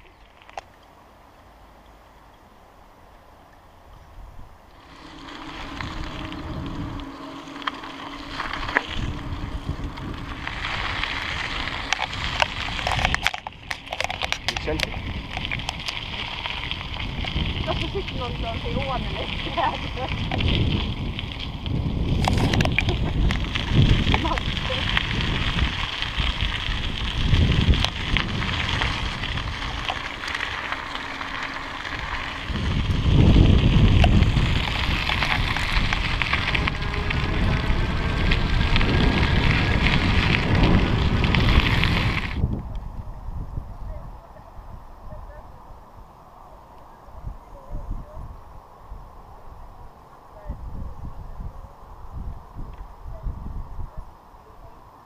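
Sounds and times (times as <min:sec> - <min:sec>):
bicycle tyres rolling on gravel: 0:00.0 - 0:00.9, 0:03.8 - 0:55.0
gravel and bike rattles: 0:00.0 - 0:55.0
wind rushing over microphone: 0:03.9 - 0:55.0
small stones ticking: 0:04.8 - 0:42.4.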